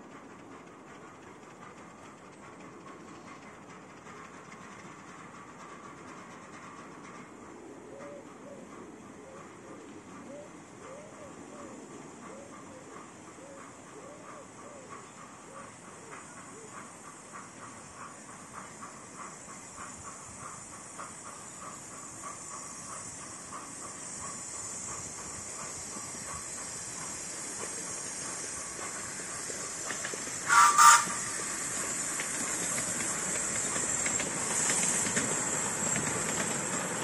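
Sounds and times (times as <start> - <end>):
steam hissing: 0.0 - 37.0
steam whistle blasts: 30.5 - 31.3.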